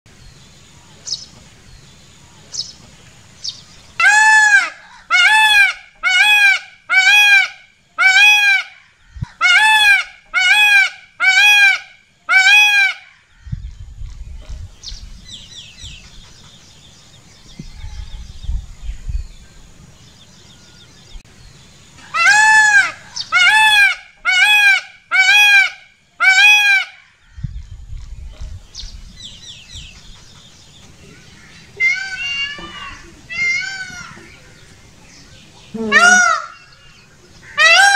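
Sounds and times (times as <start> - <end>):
small birds chirping: 0.1 - 4.0, 13.2 - 22.2, 22.9 - 24.4, 27.1 - 37.6
peacock calling: 2.2 - 13.8, 20.4 - 27.7, 28.8 - 37.9.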